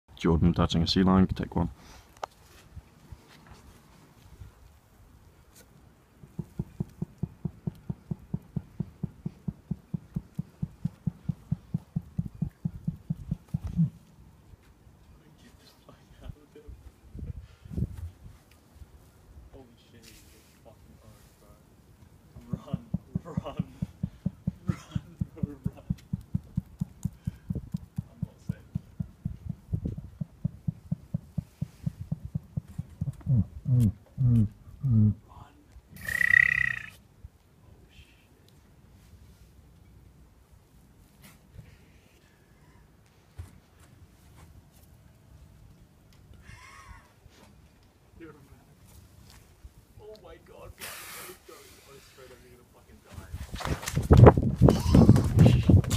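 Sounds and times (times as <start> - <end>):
low throbbing soft thumps: 6.6 - 14.0, 22.6 - 35.2
seal low pulsed grunts: 33.2 - 35.3.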